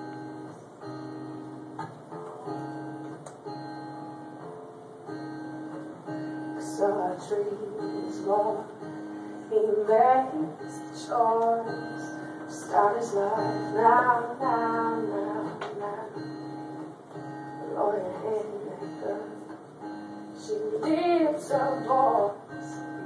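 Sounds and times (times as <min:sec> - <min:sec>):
acoustic guitar strumming chords: 0:00.0 - 0:23.0
woman singing: 0:06.5 - 0:16.8, 0:17.6 - 0:19.6, 0:20.2 - 0:23.0.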